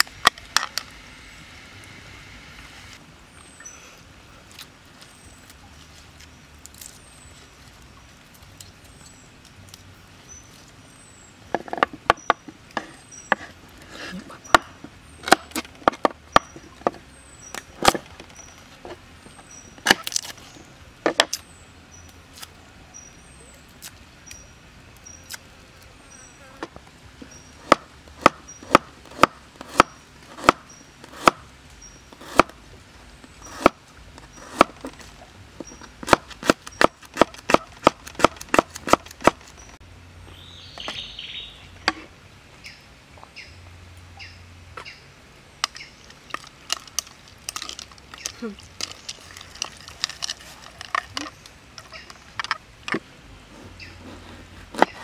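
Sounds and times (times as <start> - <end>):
knife chopping on wooden board: 27.6 - 31.4, 32.2 - 32.5, 33.5 - 33.8, 36.0 - 39.4.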